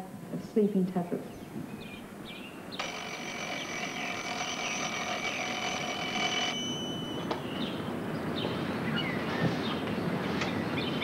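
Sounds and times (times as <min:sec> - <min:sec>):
birds chirping: 0:01.2 - 0:11.0
alarm clock bells ringing: 0:02.8 - 0:07.9.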